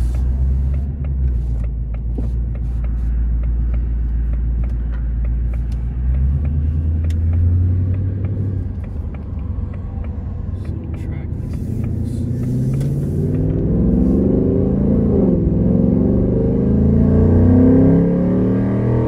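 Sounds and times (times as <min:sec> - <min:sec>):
car engine droning: 0:00.0 - 0:19.0.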